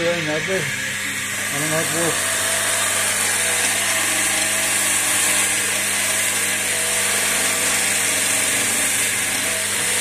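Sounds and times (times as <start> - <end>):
lathe motor humming: 0.0 - 10.0
chisel cutting hiss: 1.3 - 10.0.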